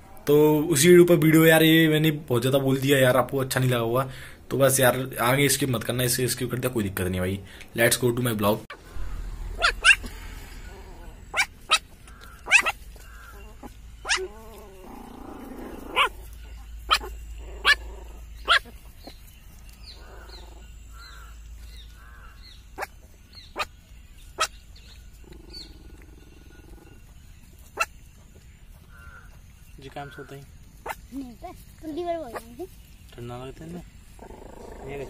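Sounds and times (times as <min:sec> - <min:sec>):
puppies yelping: 0:08.7 - 0:28.0
puppies grumbling: 0:08.7 - 0:28.1, 0:33.8 - 0:35.0.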